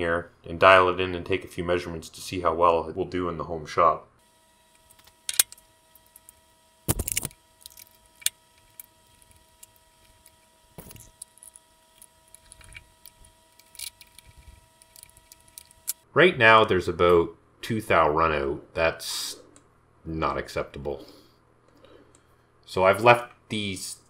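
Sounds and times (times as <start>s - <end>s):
faint steady hum: 0.0s - 24.0s
metal clinks and knocks: 10.8s - 11.7s.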